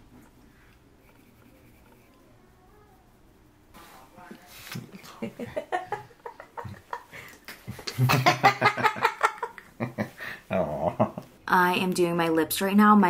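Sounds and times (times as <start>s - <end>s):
woman and man laughing: 5.0s - 10.2s.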